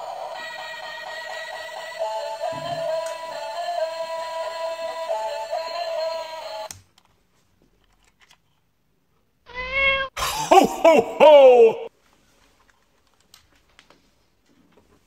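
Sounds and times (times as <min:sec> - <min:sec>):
tinny electronic tune with synth singing: 0:00.0 - 0:06.7.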